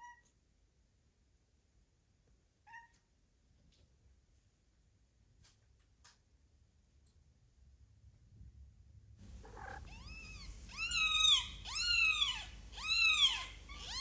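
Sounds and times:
cat meowing: 0:09.3 - 0:14.0.

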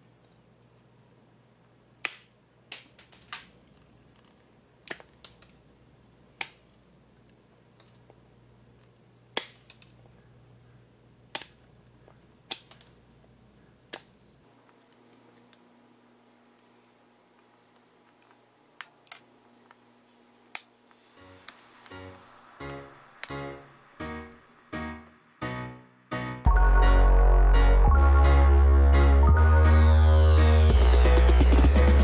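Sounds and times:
knife cutting wood snaps: 0:09.3 - 0:09.9, 0:11.3 - 0:11.6, 0:12.5 - 0:12.9.

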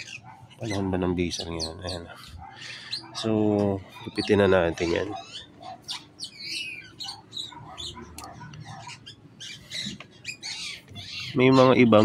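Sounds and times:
birds chirping and squawking: 0:00.0 - 0:12.0.

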